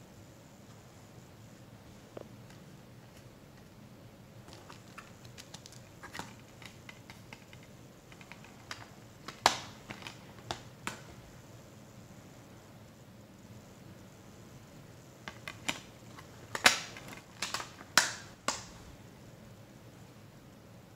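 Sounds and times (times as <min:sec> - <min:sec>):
plastic case snapping: 0:04.5 - 0:11.1, 0:15.3 - 0:18.7.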